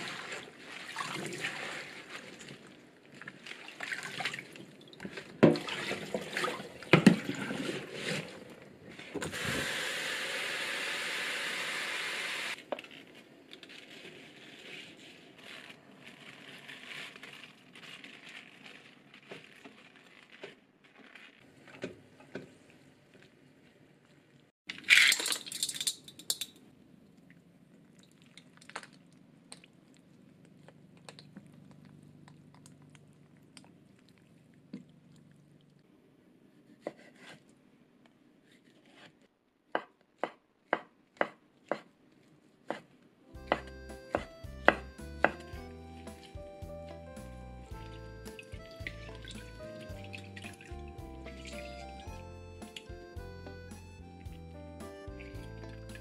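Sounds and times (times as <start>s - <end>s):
water splashing: 0.0s - 8.6s, 48.2s - 52.1s
leaves rustling: 12.3s - 21.4s
knife chopping on wooden board: 39.8s - 41.9s, 42.7s - 45.5s.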